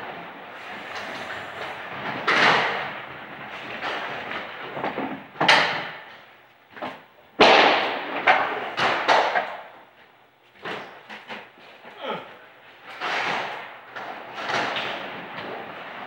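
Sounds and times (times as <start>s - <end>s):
bowling pins crashing: 0.0s - 6.0s.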